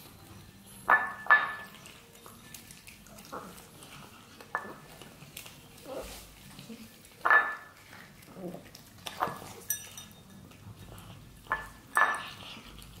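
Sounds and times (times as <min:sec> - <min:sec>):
glass bowls clinking: 0:00.0 - 0:02.7, 0:07.2 - 0:07.8, 0:09.0 - 0:13.0
cats crunching food: 0:01.6 - 0:13.0.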